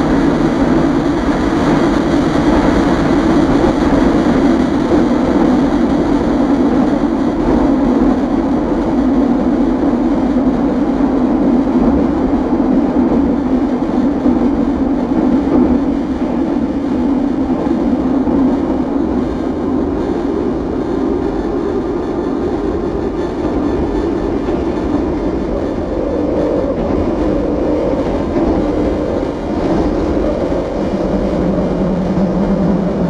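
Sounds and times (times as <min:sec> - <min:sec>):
noise music drone: 0:00.0 - 0:33.0.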